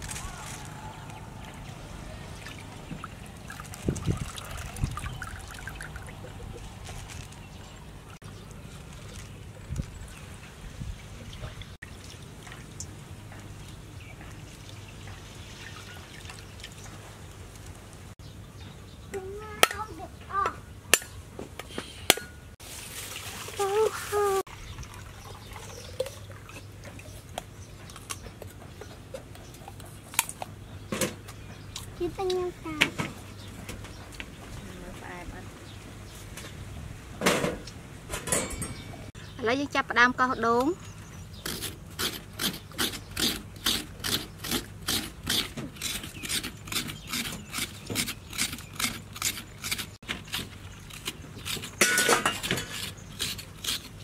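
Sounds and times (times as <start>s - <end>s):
coconut scraper rasping: 41.4s - 54.0s.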